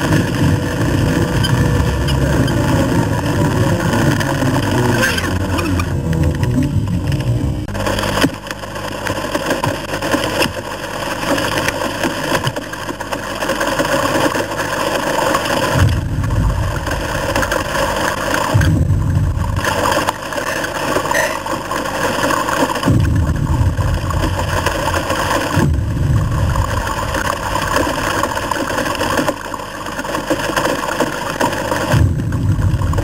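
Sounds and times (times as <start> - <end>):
heavy rain on a car: 0.0 - 33.0
deep booming thuds: 18.6 - 19.6, 31.9 - 33.0.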